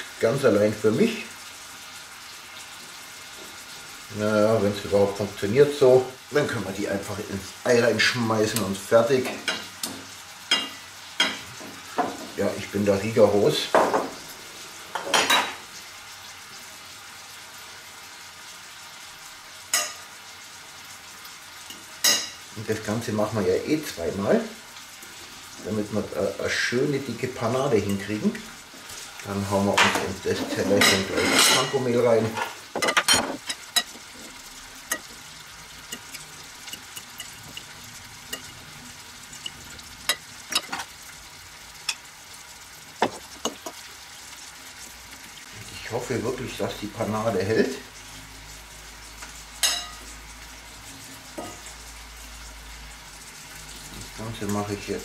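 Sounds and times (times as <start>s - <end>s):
food sizzling in a pan: 0.0s - 55.0s
plates and fork clattering: 29.8s - 34.0s, 40.5s - 40.9s
spoon clinking on porcelain plates: 35.9s - 37.7s, 39.4s - 40.8s, 49.6s - 50.0s.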